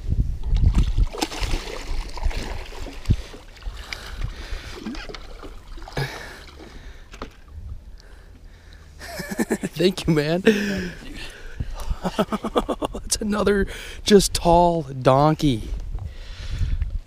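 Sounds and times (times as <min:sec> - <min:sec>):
fish thrashing and splashing: 0:00.4 - 0:07.6.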